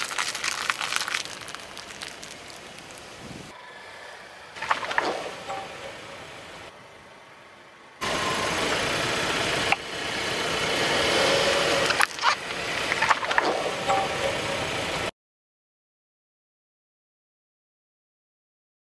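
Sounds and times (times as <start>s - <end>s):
clicks and crackles under tyre: 0.0s - 3.5s, 4.6s - 5.7s, 11.7s - 14.4s
car engine and tyre noise: 0.0s - 15.1s.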